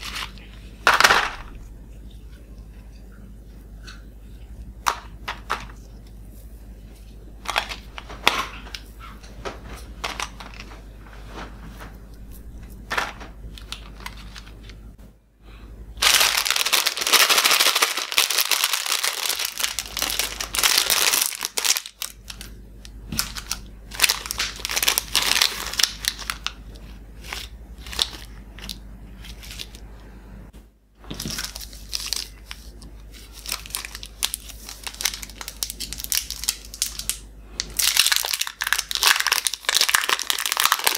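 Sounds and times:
plastic wrappers crinkling: 0:00.0 - 0:01.5, 0:07.4 - 0:11.9, 0:12.6 - 0:14.8, 0:16.0 - 0:29.8, 0:31.1 - 0:40.9.

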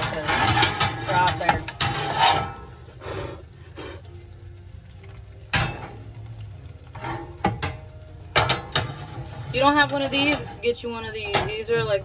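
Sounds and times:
cookware knocking and clattering: 0:00.0 - 0:02.7, 0:07.0 - 0:12.0.

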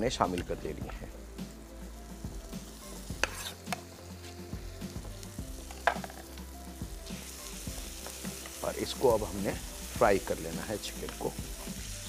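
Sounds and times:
chicken sizzling in a pan: 0:00.0 - 0:12.0.

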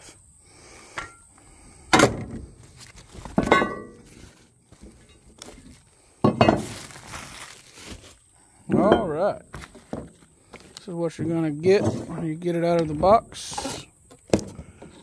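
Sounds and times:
plastic wrapping rustling: 0:06.6 - 0:08.3.

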